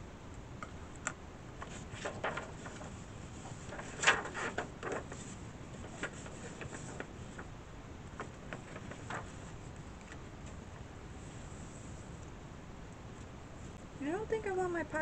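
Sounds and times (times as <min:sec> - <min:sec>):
paper rustling and folding: 0:01.6 - 0:10.6.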